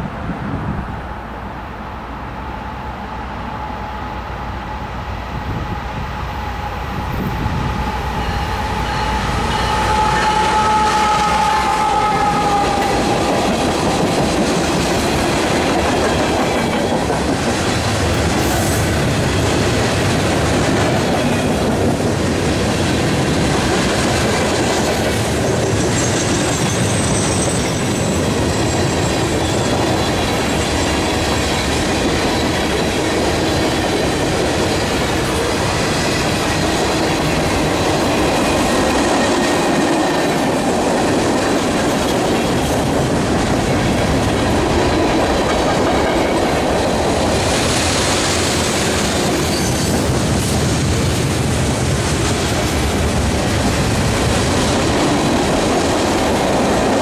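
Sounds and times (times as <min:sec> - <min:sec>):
train wheels rumbling on rail: 0:00.0 - 0:57.0
high-pitched wheel squeal: 0:25.9 - 0:29.7.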